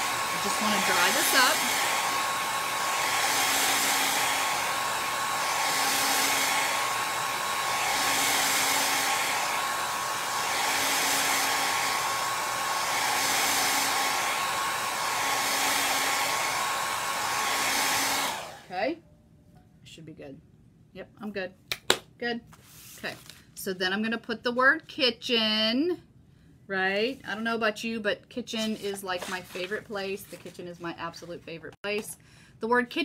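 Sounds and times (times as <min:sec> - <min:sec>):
electric dryer blowing with whine: 0:00.0 - 0:18.8.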